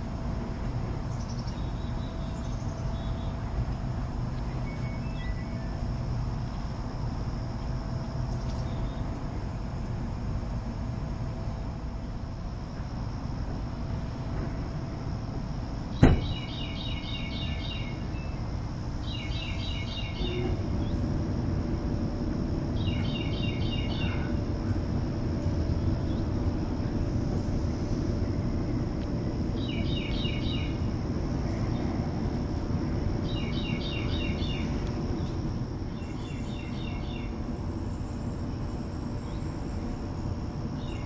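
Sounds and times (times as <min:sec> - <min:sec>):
distant traffic rumble: 0:00.0 - 0:41.0
insect drone: 0:00.0 - 0:41.0
bird calling: 0:22.8 - 0:24.4.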